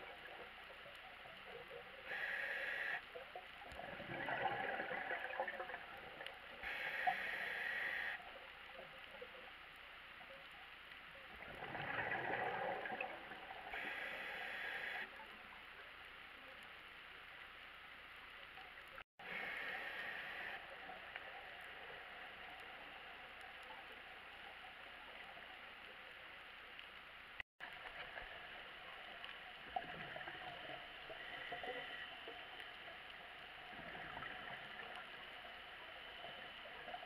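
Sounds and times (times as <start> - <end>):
exhaled bubbles: 3.7 - 8.2, 11.3 - 15.0, 33.6 - 37.0.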